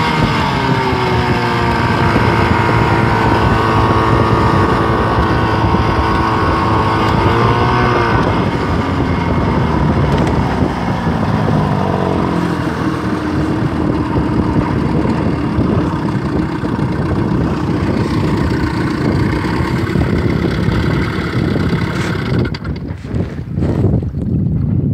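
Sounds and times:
outboard motor running: 0.0 - 24.2.

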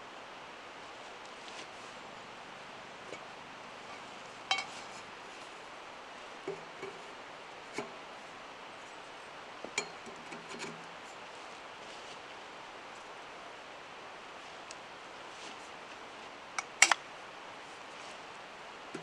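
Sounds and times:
steady background hiss: 0.0 - 19.0
metal stovepipe sections clinking: 3.9 - 4.9, 9.7 - 10.8, 16.6 - 17.0.

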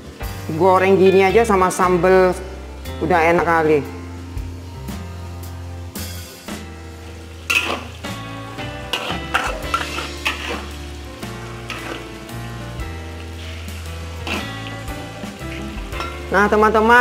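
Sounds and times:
chicken deep-frying in oil: 0.0 - 17.0
faint background music: 0.0 - 17.0
metal spatula clattering: 7.5 - 8.1, 8.8 - 10.8, 11.6 - 12.2, 14.2 - 16.3.

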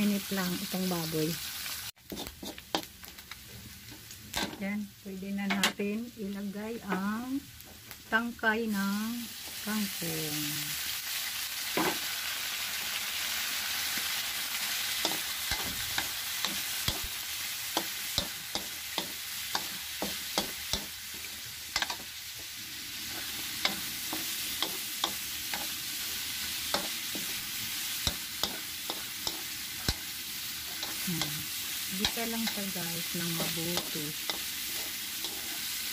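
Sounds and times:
food sizzling in a frying pan: 0.0 - 35.9
utensil scraping a pan: 2.0 - 2.9, 33.3 - 35.8.

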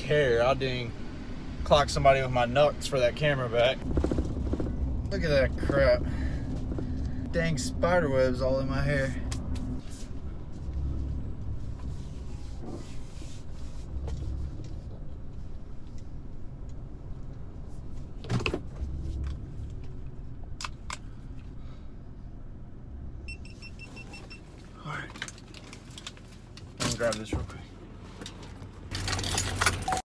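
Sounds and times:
engine rumble inside cabin: 0.0 - 30.0.

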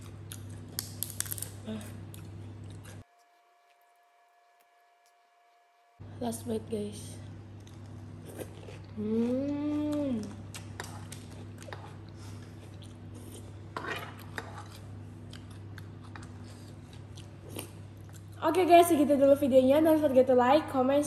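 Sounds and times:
person chewing: 0.0 - 6.0, 7.5 - 18.4
steady low hum: 0.0 - 21.0
person humming mmm: 1.6 - 2.2, 9.0 - 10.4.

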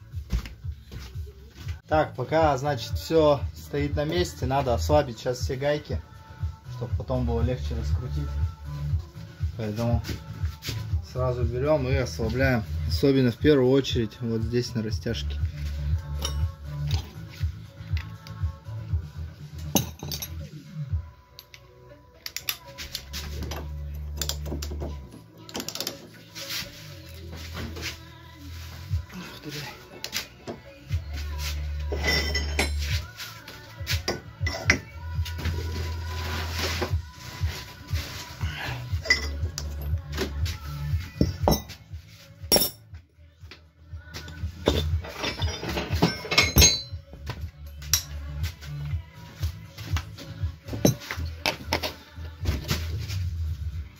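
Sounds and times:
background music: 0.0 - 53.9
metal tools clinking: 16.2 - 17.1, 19.7 - 20.5, 22.2 - 26.1, 31.9 - 33.0, 39.0 - 40.0, 42.5 - 42.8, 44.6 - 47.0.

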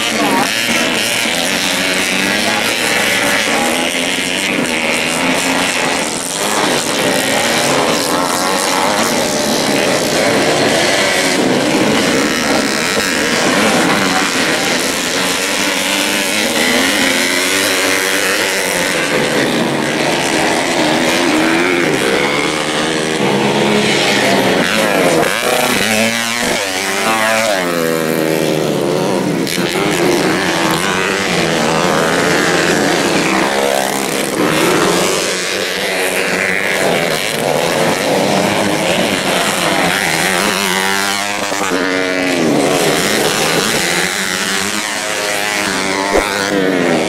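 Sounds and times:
motorcycles revving high: 0.0 - 47.0.

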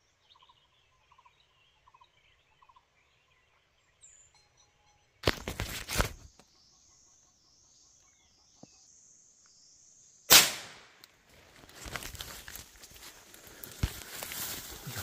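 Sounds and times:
camera handling rustle: 5.2 - 6.4.

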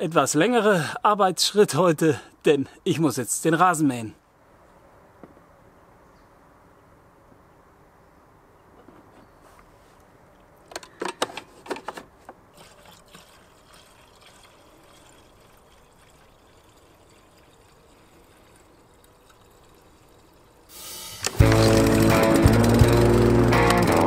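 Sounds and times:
petrol trickling into tank: 12.5 - 21.5.

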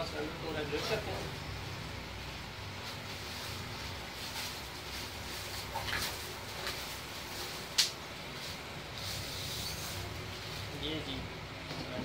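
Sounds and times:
bubble wrap crinkling: 2.7 - 10.8.

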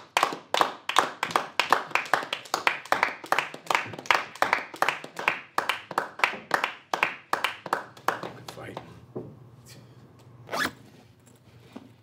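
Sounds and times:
hand clapping: 0.0 - 9.0.

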